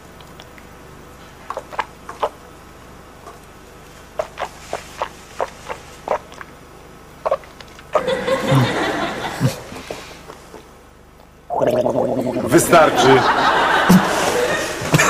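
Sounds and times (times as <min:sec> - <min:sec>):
studio audience laughter: 0:08.0 - 0:09.7, 0:12.4 - 0:15.0.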